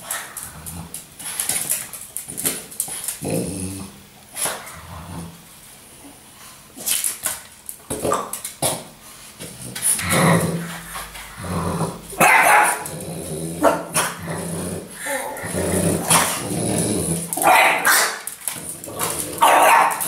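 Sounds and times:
dog growling: 3.1s - 4.0s, 9.5s - 20.0s
dog barking: 12.2s - 12.8s, 17.4s - 18.2s, 19.4s - 20.0s.

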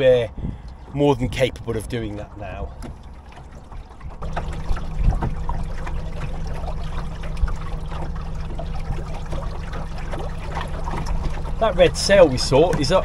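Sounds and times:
small boat motor running: 0.0s - 13.0s
water splashing along hull: 0.0s - 13.0s.

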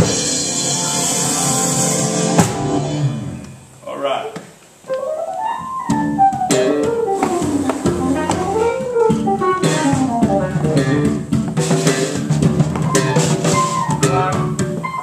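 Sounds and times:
drum and cymbal hits: 0.0s - 3.7s, 5.9s - 15.0s
live band playing: 0.0s - 3.8s, 4.8s - 15.0s.

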